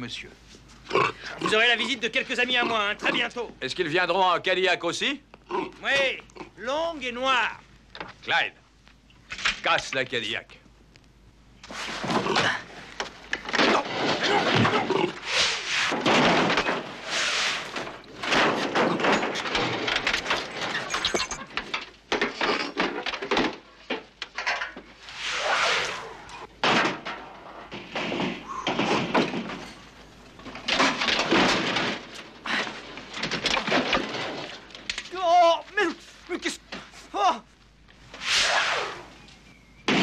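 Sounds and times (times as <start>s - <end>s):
car body being smashed: 26.6s - 29.8s, 30.4s - 35.1s.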